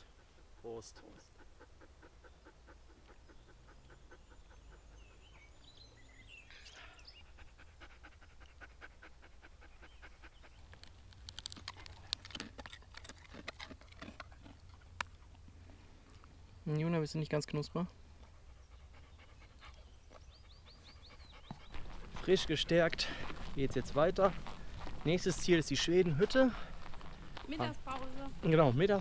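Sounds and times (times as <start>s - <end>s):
dog panting: 0.0s - 5.8s, 6.8s - 15.3s, 18.2s - 29.0s
clicks and rustles: 10.7s - 14.4s.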